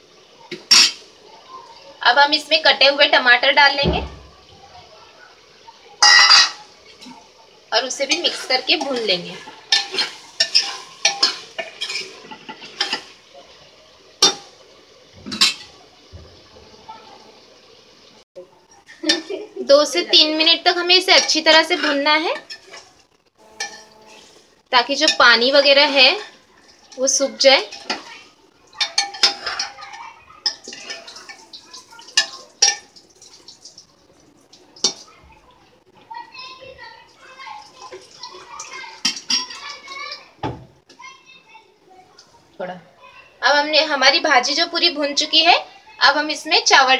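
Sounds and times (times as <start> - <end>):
vegetables frying: 0.0 - 46.9
ladle clinking against pot: 6.0 - 6.6, 9.7 - 13.1, 28.8 - 29.8
ladle scraping pot: 7.9 - 13.2, 21.0 - 24.4, 28.7 - 31.4
ladle stirring in pot: 7.9 - 15.9, 20.1 - 35.1, 37.6 - 40.2.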